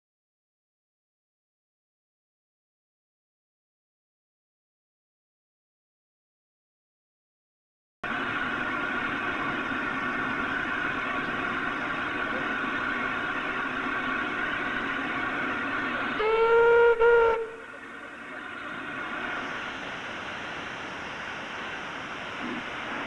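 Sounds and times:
steam hissing: 8.1 - 23.0
steam whistle blast: 16.0 - 17.8.

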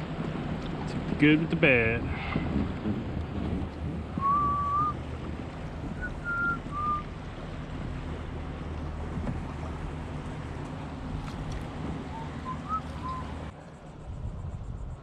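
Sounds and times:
motorboat rumble: 0.0 - 15.0
wind on microphone: 0.0 - 15.0
whistled notes: 4.2 - 5.0, 5.9 - 7.1, 12.1 - 13.4.

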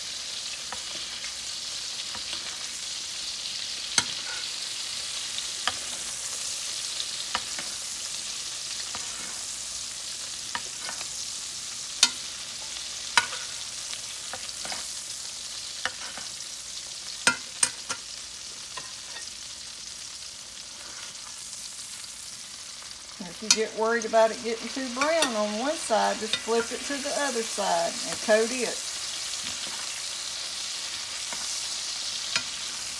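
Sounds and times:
steak sizzling in a skillet: 0.0 - 32.9
metal clinks of utensils on pan: 12.0 - 12.3, 17.2 - 18.0.

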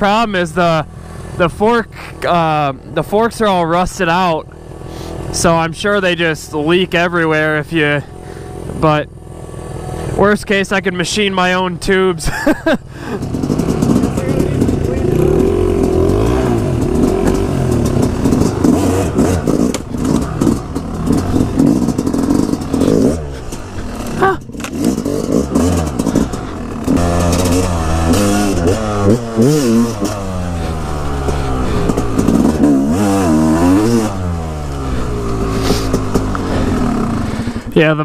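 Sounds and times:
dirt bike engine revving: 0.0 - 38.0
bike clattering over rough ground: 13.2 - 36.8.

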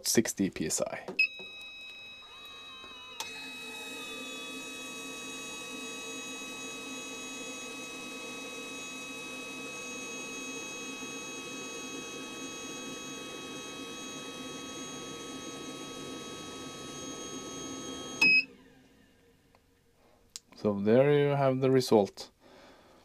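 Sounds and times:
pump hum with thin whine: 1.1 - 20.2.

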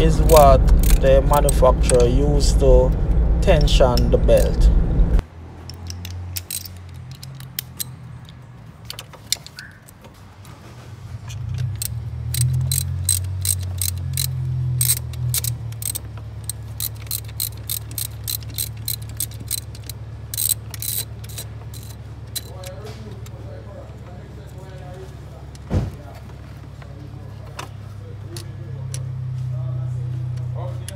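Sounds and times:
ratchet wrench clicking: 0.0 - 2.1, 5.6 - 9.8, 11.3 - 22.8
low hum: 0.0 - 5.2.

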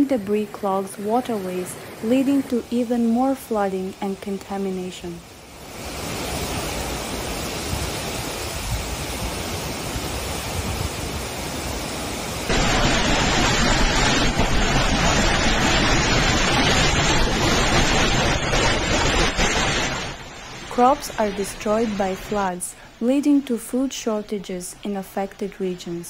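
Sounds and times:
driving rain: 0.0 - 23.1
steady rushing noise: 5.3 - 23.0
strong wind buffeting microphone: 5.7 - 11.9.

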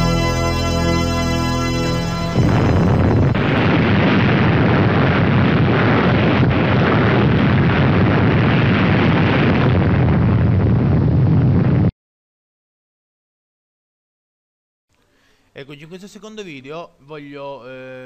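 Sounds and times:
fire rumbling: 0.0 - 11.9.

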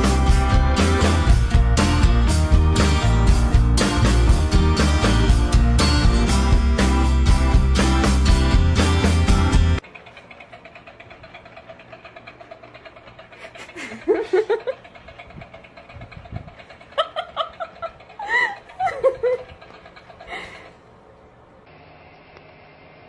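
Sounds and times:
person laughing: 13.3 - 14.9, 16.6 - 20.8.

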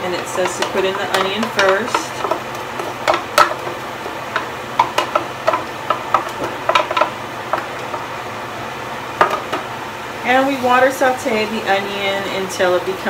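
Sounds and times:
wooden spoon scraping steel pan: 0.0 - 8.0
oven fan hum: 0.0 - 13.0.

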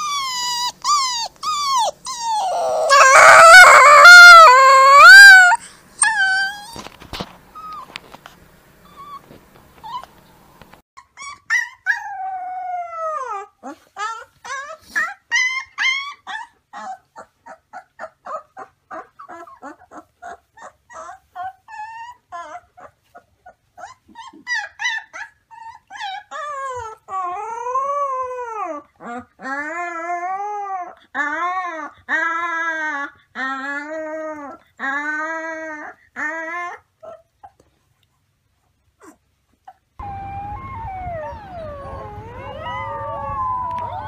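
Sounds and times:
puppy howling: 0.0 - 6.9, 40.0 - 44.0
puppy yipping and whimpering: 0.0 - 6.9, 8.9 - 37.8, 39.0 - 44.0.

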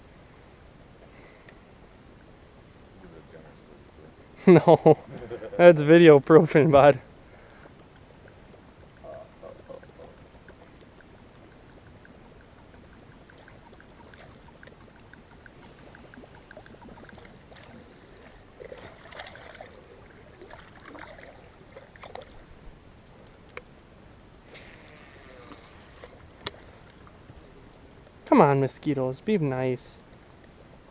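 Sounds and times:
soft water splashes: 0.2 - 28.6
fishing reel ticking: 10.9 - 17.7.

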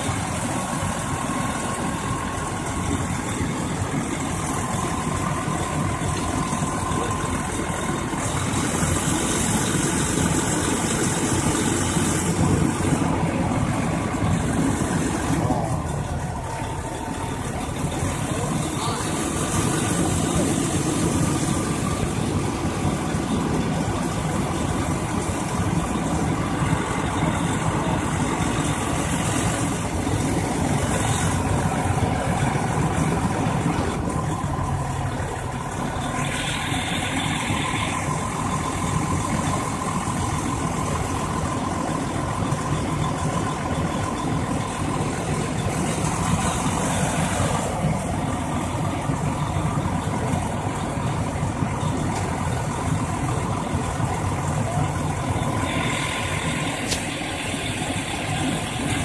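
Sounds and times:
diesel engine running: 0.0 - 59.0.

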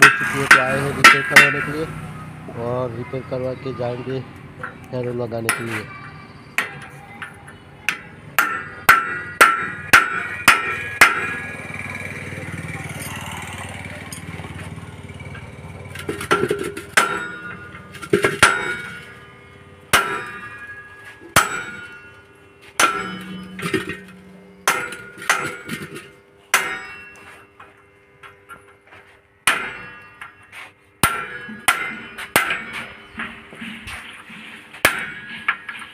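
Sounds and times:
hammer striking metal: 0.0 - 1.9, 5.4 - 11.6, 15.9 - 33.9, 34.8 - 35.9.

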